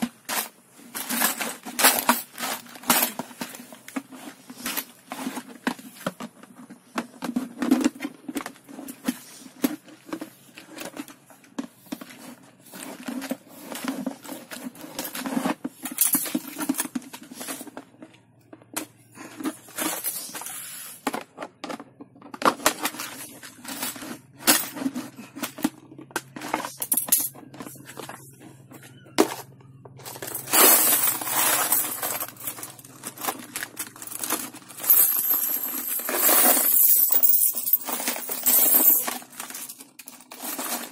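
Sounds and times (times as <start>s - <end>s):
coins rattling in piggy bank: 0.2s - 3.7s, 12.2s - 17.8s, 19.3s - 21.0s, 22.4s - 25.7s, 26.3s - 28.2s, 29.2s - 40.9s
piggy bank scraping on tile: 11.7s - 16.6s, 19.1s - 21.2s, 27.4s - 39.6s.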